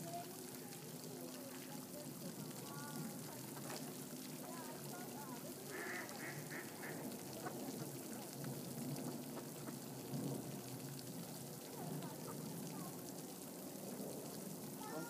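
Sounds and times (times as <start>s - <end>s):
fountain spray splashing into water: 0.0s - 15.0s
mallard ducks quacking: 5.7s - 8.1s.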